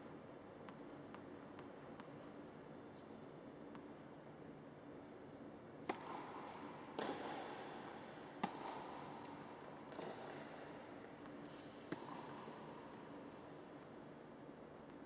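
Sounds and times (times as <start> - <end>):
tennis ball struck with racquet: 5.8 - 7.6, 8.4 - 12.7.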